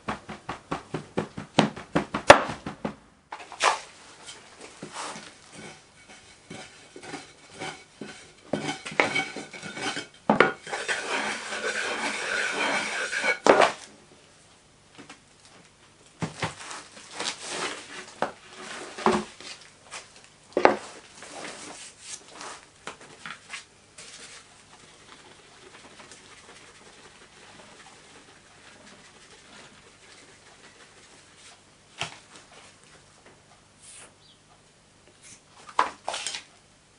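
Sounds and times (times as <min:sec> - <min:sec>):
sharp wooden knocks: 0:00.0 - 0:03.0
wooden bar scraping sand: 0:04.8 - 0:13.8, 0:16.6 - 0:19.5.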